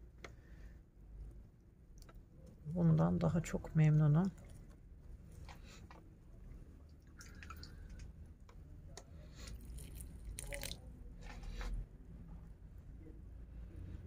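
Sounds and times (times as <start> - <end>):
water squirting and dripping on soil: 4.2 - 8.5, 9.2 - 11.7.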